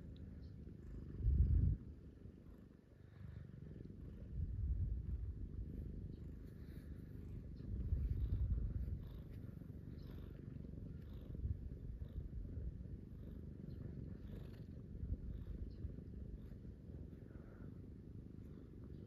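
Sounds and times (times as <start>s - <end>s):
cat purring: 0.0s - 19.0s.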